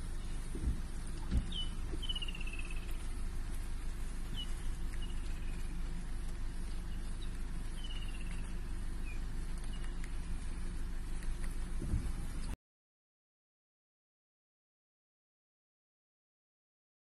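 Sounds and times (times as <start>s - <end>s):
vehicle engine idling: 0.0s - 12.6s.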